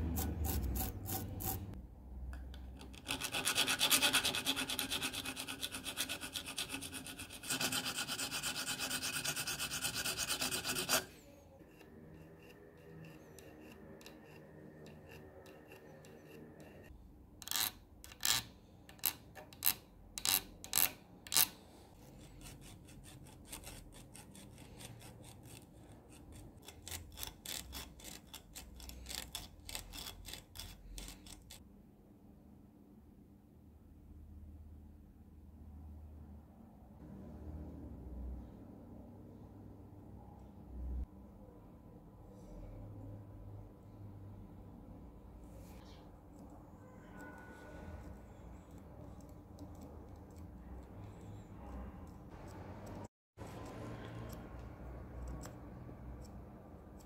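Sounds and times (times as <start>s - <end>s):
metal file rasping on screw: 0.0s - 1.8s, 2.8s - 31.6s, 45.6s - 57.0s.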